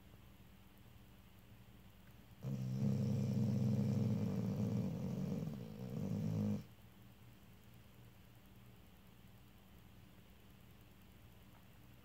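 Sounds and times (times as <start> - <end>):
dog snoring: 2.4 - 6.7.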